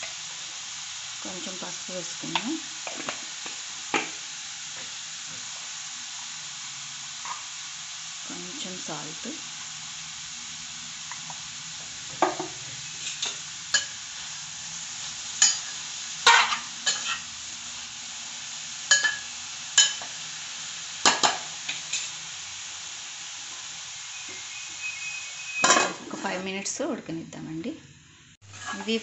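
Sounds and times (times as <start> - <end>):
cabbage sizzling in oil: 0.0 - 29.0
metal spoon scraping pan: 16.3 - 17.2, 28.5 - 29.0.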